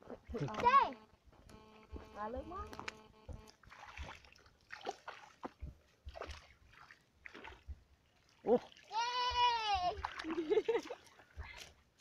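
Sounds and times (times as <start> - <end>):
water splashing and sloshing: 3.2 - 12.0.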